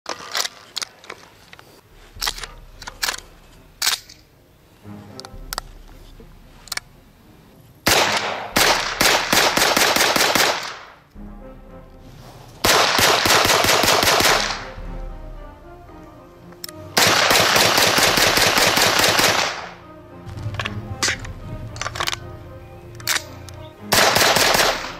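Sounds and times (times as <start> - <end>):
submachine gun firing bursts: 7.9 - 10.9, 12.7 - 14.6, 17.0 - 19.7, 23.9 - 24.9.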